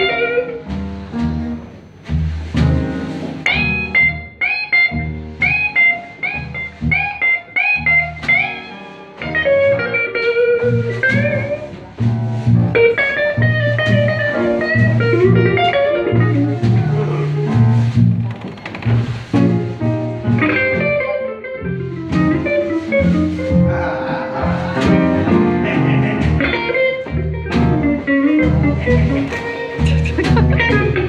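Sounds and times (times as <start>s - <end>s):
electric guitar solo: 0.0s - 0.6s, 3.4s - 11.7s, 20.4s - 31.0s
bass: 0.0s - 31.0s
drums: 0.0s - 31.0s.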